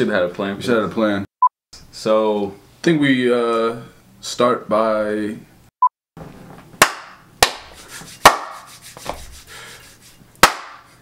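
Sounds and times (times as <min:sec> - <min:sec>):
sharp hand slaps: 0:06.8 - 0:09.3, 0:10.4 - 0:10.9
hands rubbing: 0:07.5 - 0:10.3.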